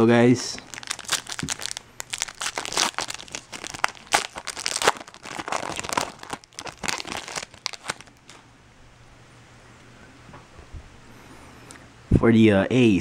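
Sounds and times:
foil wrapper crinkling and tearing: 0.6s - 8.4s.

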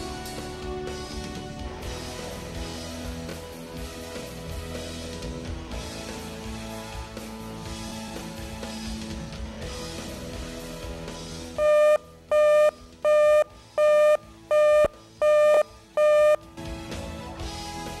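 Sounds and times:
electronic alert beeps: 11.6s - 16.4s.

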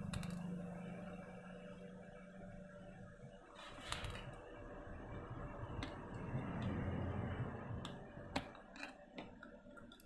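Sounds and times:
rubbing and handling noise: 3.5s - 4.4s.

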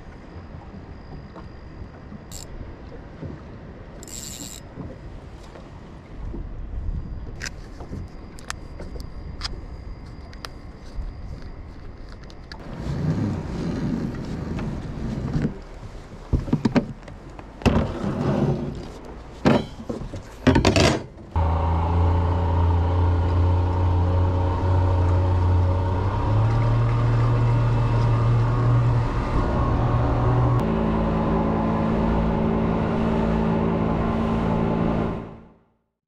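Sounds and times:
two-stroke outboard motor running: 21.4s - 35.5s.

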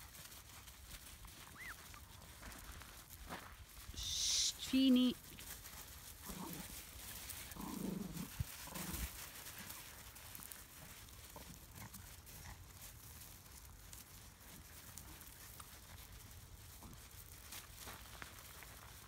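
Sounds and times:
paws scuffling on gravel: 0.0s - 19.0s
puppies growling: 6.0s - 9.8s.

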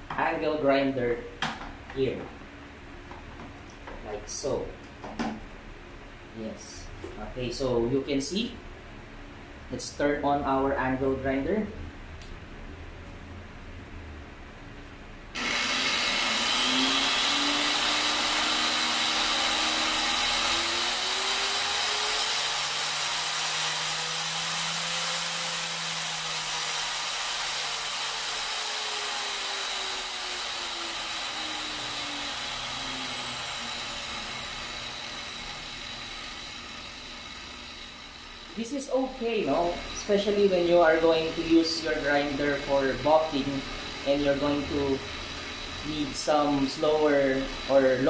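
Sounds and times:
angle grinder motor whine: 15.4s - 48.0s.

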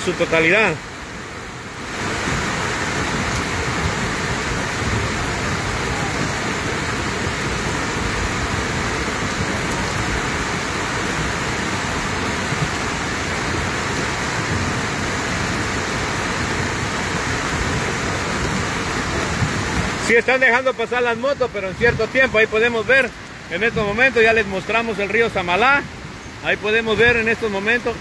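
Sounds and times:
rain falling: 0.0s - 28.0s
river rushing: 0.0s - 28.0s.

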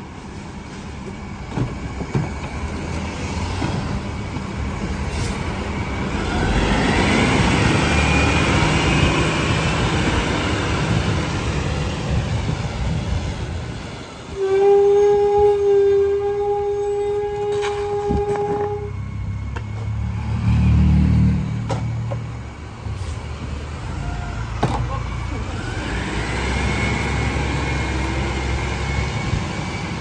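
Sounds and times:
diesel engine revving: 2.5s - 14.0s, 17.8s - 30.0s
loud horn-like tone: 14.3s - 19.4s.

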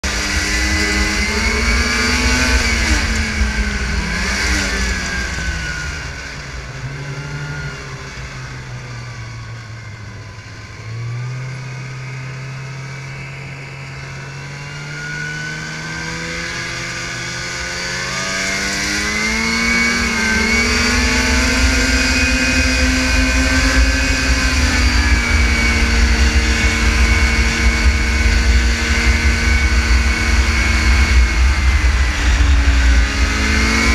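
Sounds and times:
heavy low rumble: 0.0s - 10.9s, 20.8s - 33.9s
snowmobile engine running: 0.0s - 33.9s.

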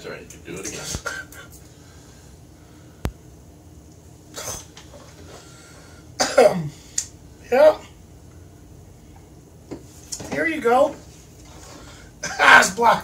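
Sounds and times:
man's loud vocal exclamation: 12.2s - 13.0s.

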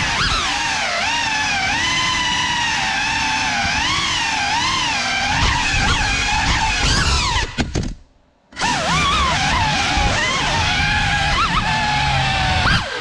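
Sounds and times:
drone motors whining: 0.0s - 7.9s, 8.5s - 13.0s.

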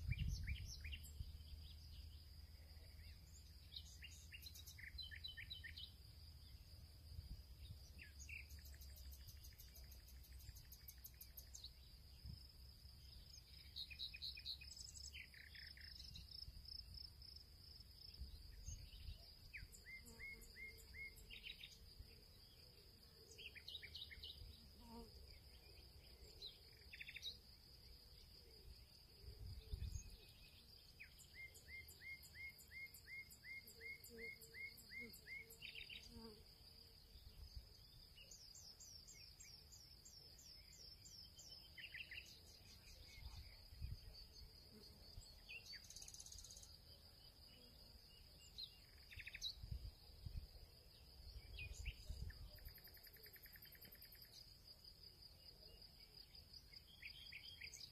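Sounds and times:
insect trill: 0.0s - 57.9s.

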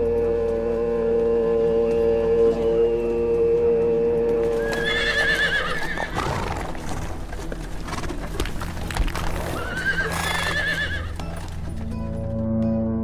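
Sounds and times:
held musical drone: 0.0s - 13.0s
horse whinnying: 4.5s - 11.3s.

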